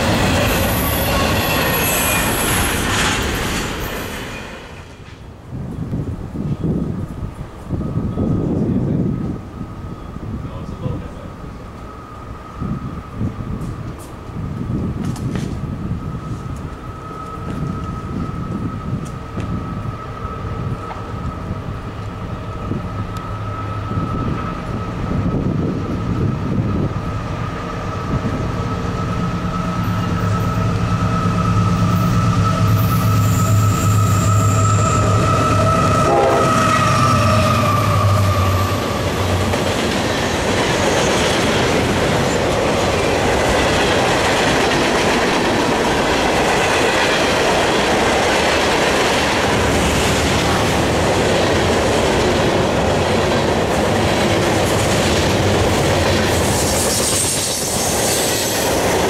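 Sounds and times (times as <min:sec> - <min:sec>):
train wheels clattering on rail: 0:00.0 - 0:09.4, 0:13.2 - 0:33.6, 0:34.6 - 0:59.0
train horn blast: 0:32.4 - 0:39.0.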